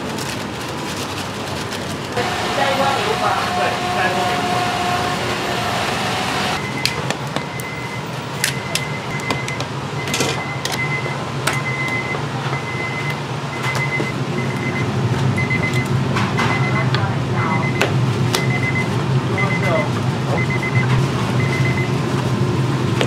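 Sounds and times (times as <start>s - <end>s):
steady low hum: 2.0s - 6.8s
electric hand mixer whirring: 2.2s - 6.6s.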